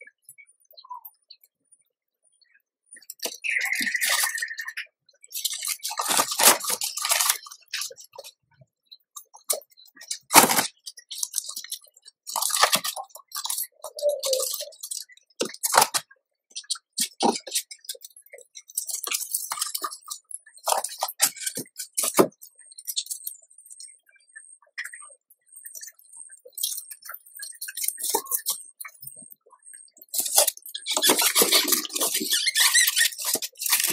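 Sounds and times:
rustling of shredded paper and sticks: 5.3 - 8.4, 9.3 - 22.3, 30.1 - 33.9.

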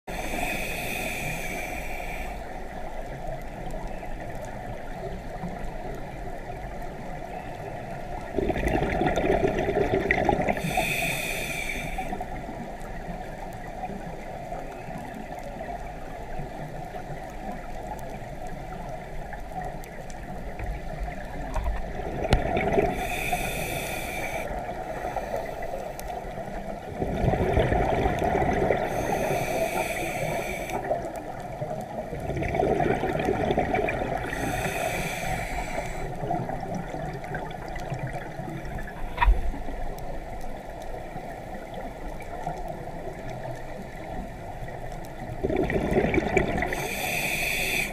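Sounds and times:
underwater noise: 0.0 - 47.9
scuba diver breathing through regulator: 0.1 - 2.6, 10.4 - 12.4, 22.5 - 26.2, 28.6 - 31.0, 33.6 - 36.4, 46.5 - 47.9.

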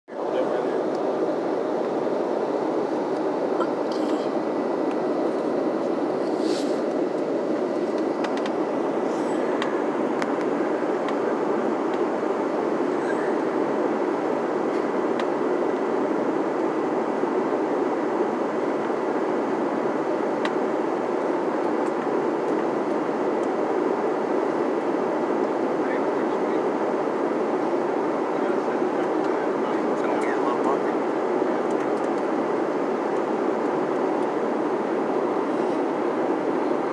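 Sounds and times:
airliner cabin noise: 0.1 - 36.9.

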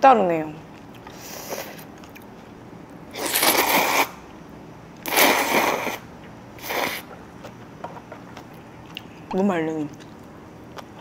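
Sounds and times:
noodles being slurped: 3.2 - 4.2, 5.0 - 6.0.

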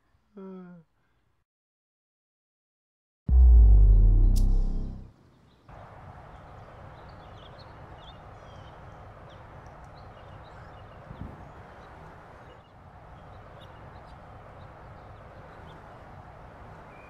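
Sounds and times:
deep musical hit: 3.3 - 5.1
outdoor background noise: 3.3 - 17.0
small birds chirping: 5.1 - 17.0.

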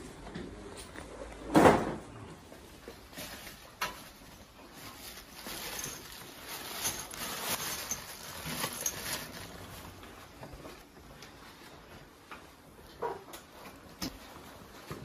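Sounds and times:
objects being handled: 2.6 - 15.0
plastic bag crinkling: 2.9 - 11.8.

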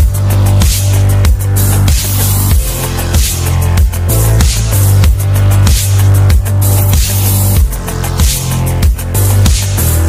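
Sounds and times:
electronic dance music: 0.0 - 10.0.

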